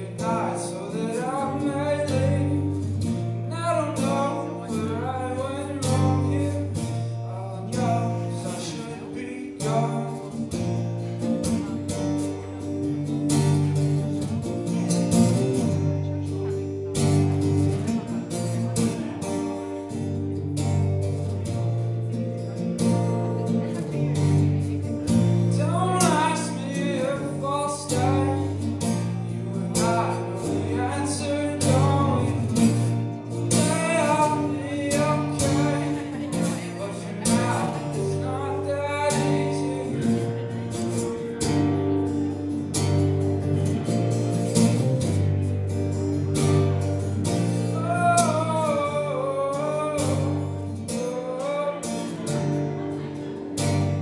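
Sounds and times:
person singing: 0.0s - 10.5s, 25.2s - 41.5s, 47.3s - 54.0s
acoustic guitar: 0.0s - 54.0s
electric guitar: 0.0s - 54.0s.

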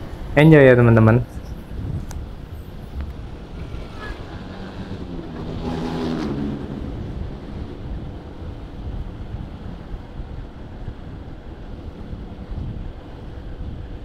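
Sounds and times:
wind rushing over microphone: 0.0s - 14.0s
low rumble: 1.6s - 12.5s.

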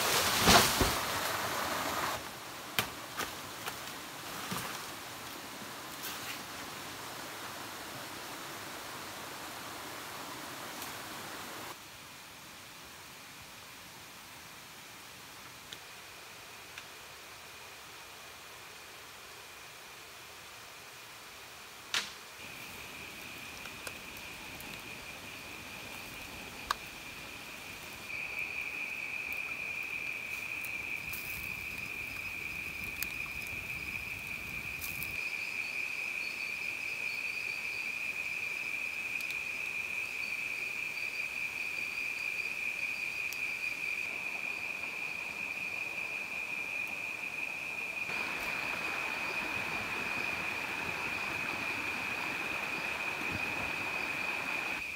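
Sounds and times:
broad hiss: 0.0s - 11.8s, 15.8s - 35.6s, 47.0s - 54.9s
insects droning: 0.0s - 11.8s, 14.4s - 54.9s.

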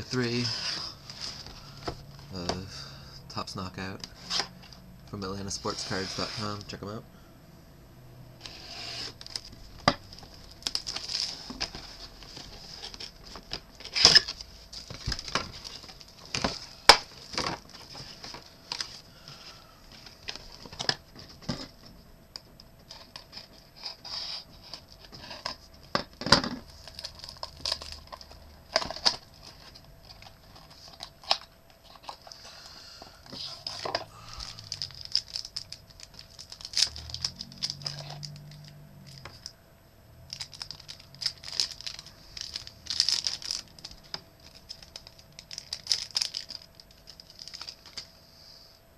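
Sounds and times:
packaging rustling and crinkling: 8.4s - 22.0s, 22.9s - 32.5s, 33.2s - 39.5s, 40.3s - 48.1s.

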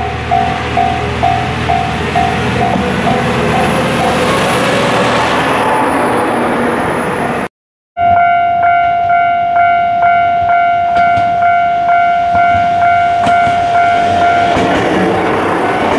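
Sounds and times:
diesel railcar running: 0.0s - 7.5s, 10.0s - 15.9s
level crossing bell ringing: 8.0s - 14.6s.

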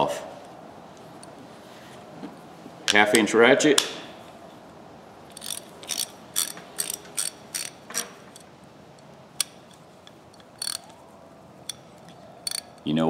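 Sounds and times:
hand ratchet clicking: 5.3s - 11.0s, 11.6s - 12.9s.

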